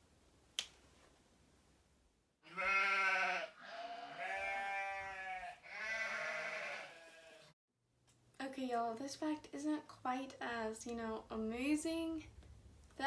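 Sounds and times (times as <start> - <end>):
farm animal bleating: 2.4 - 7.5.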